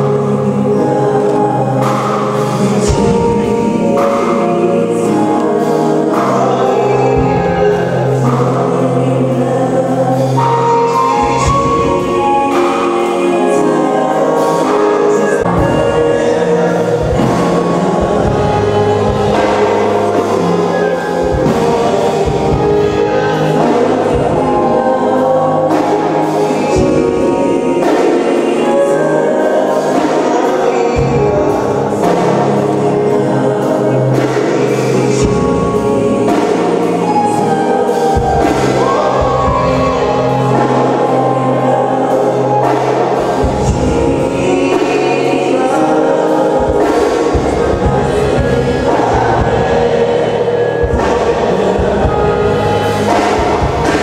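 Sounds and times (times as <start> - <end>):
bass line: 0.0 - 54.0
choir singing gospel: 0.0 - 54.0.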